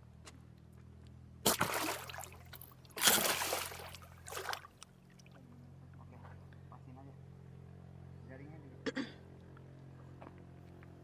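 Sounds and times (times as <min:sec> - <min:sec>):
fish splashing in water: 0:01.4 - 0:05.4.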